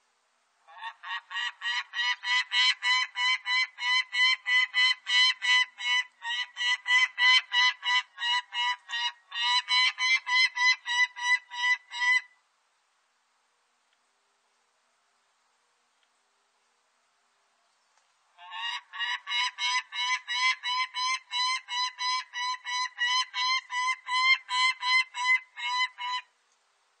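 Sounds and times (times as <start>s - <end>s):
falcon kak calls: 18.4s - 26.3s.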